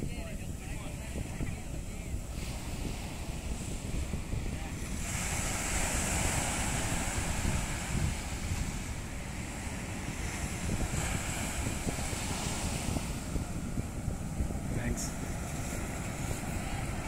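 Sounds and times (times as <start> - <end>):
small waves breaking on beach: 0.0 - 17.0
wind buffeting microphone: 0.0 - 17.0.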